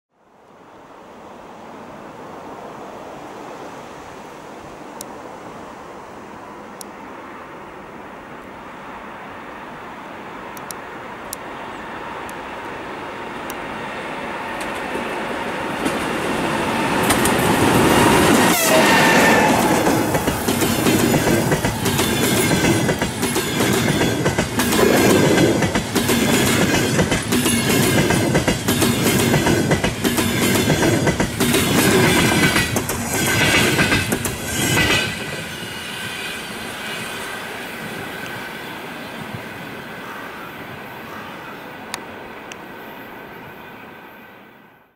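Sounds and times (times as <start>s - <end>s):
electric locomotive passing: 0.4s - 44.9s
train wheels clacking over rail joints: 14.5s - 36.3s.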